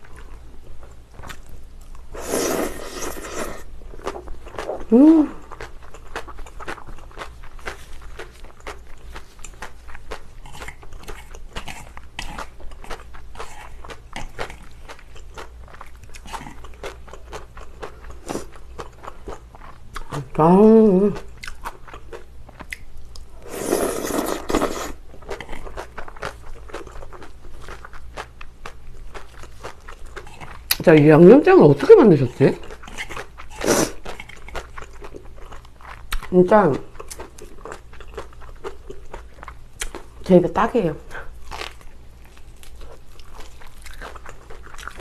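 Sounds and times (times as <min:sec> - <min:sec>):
noodle slurp: 0:02.2 - 0:03.7, 0:23.4 - 0:25.0
person humming: 0:04.8 - 0:05.4.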